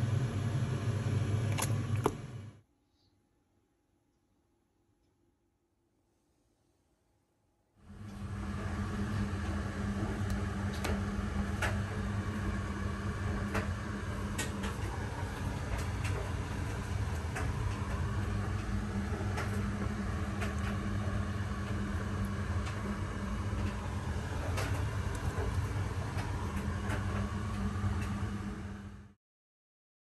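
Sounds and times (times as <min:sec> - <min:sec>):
kitchen appliance humming: 0:07.9 - 0:29.2.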